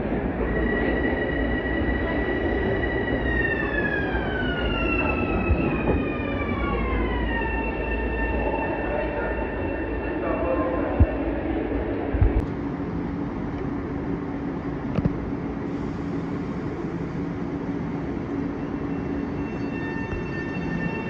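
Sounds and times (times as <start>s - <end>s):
electric train whine: 0.0s - 10.9s, 12.4s - 21.0s
train rumble: 10.2s - 21.0s.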